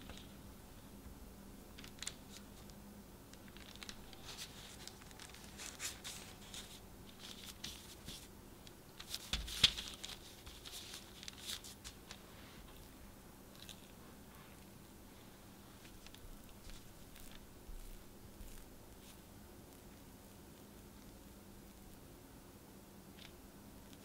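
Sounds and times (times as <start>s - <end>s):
parchment paper crinkling: 1.8s - 14.0s, 15.4s - 22.0s.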